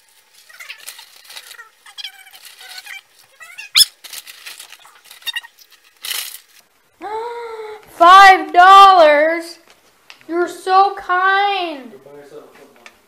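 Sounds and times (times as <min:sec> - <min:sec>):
chips poured from crinkly bag: 0:00.0 - 0:06.6
squeaky chirps and crinkles: 0:00.0 - 0:06.7
held squeaky tone: 0:00.3 - 0:05.8.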